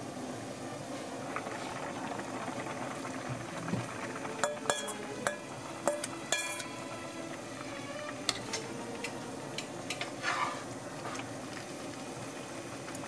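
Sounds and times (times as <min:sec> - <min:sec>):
broth bubbling in a pan: 0:00.0 - 0:13.0
metal bowl clinking on pan: 0:04.4 - 0:06.7.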